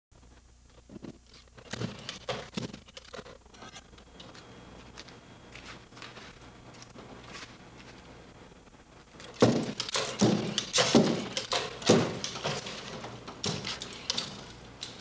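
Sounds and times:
robot feet on wooden walkway: 0:09.2 - 0:15.0.

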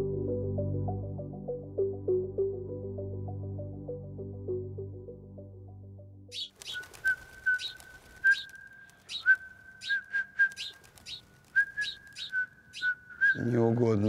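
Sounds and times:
background music: 0:00.0 - 0:07.0
man whistling with trills: 0:07.0 - 0:10.8, 0:11.6 - 0:13.5.

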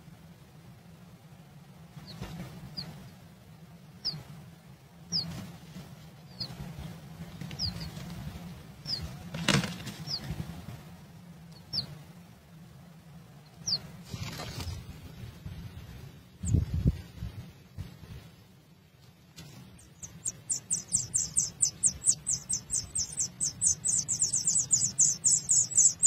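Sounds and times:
wing flutters: 0:05.1 - 0:10.8, 0:13.6 - 0:18.2, 0:19.3 - 0:26.0
rustling of nest material: 0:05.2 - 0:11.1, 0:13.8 - 0:26.0
high falling bird chirps: 0:06.3 - 0:06.6, 0:07.5 - 0:08.0, 0:08.8 - 0:09.1, 0:10.0 - 0:10.3, 0:13.4 - 0:14.8, 0:19.6 - 0:26.0.

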